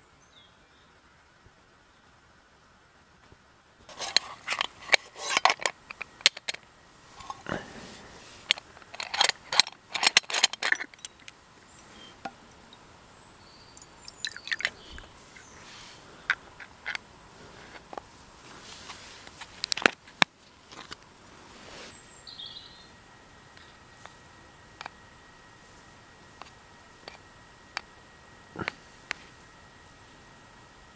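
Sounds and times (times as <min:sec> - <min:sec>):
faint birds chirping: 0:00.0 - 0:03.0, 0:10.7 - 0:19.5, 0:20.4 - 0:30.9
metal clicks and scrapes of moka pot: 0:03.9 - 0:07.5, 0:08.4 - 0:12.7, 0:13.8 - 0:14.8, 0:18.9 - 0:21.0.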